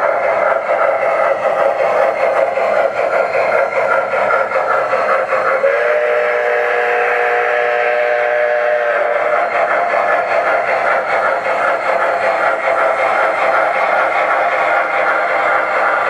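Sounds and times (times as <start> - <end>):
model train running: 0.0 - 16.0
model train steam whistle: 5.5 - 9.6.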